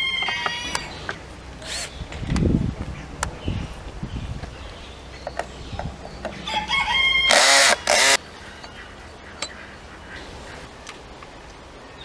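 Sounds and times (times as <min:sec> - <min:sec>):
rooster crowing: 0:06.4 - 0:07.9.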